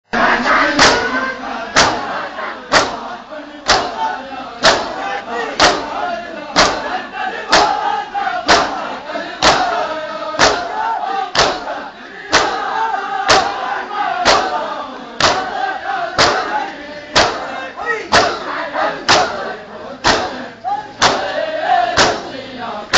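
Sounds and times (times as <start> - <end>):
crowd of men chanting: 0.1 - 22.9
hands slapping bare chests: 2.7 - 3.0, 5.6 - 5.9, 8.5 - 8.8, 9.4 - 9.8, 10.4 - 10.7, 11.4 - 11.7, 15.2 - 15.5, 16.2 - 16.4, 17.2 - 17.5, 20.0 - 20.4, 21.0 - 21.3, 22.0 - 22.3.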